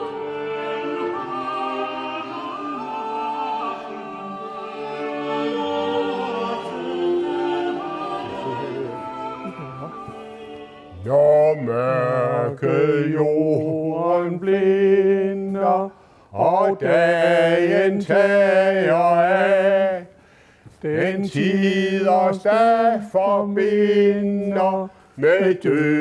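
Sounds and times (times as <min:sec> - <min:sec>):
man singing unaccompanied: 0:05.3 - 0:10.2, 0:10.8 - 0:20.2, 0:20.8 - 0:26.0.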